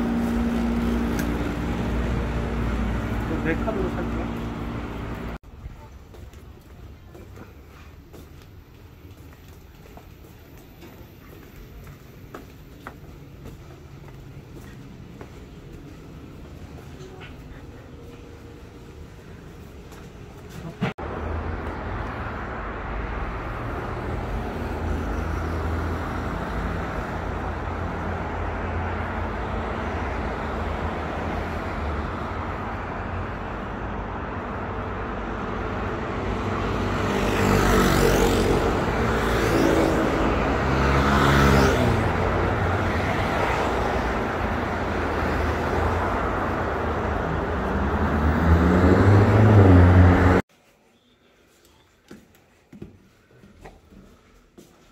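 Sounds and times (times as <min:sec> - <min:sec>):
engine speeding up: 0:00.0 - 0:05.4, 0:34.8 - 0:50.4
road traffic rumble: 0:00.0 - 0:50.5.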